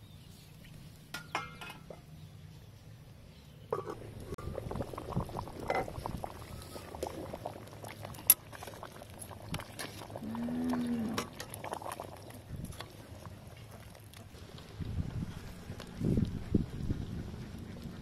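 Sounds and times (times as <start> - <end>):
soup sloshing and bubbling: 4.0 - 15.9
ladle scraping and clinking pot: 5.6 - 7.2.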